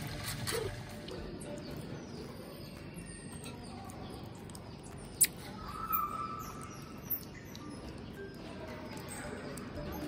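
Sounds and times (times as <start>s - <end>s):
marmosets squeaky calls: 4.8s - 10.0s.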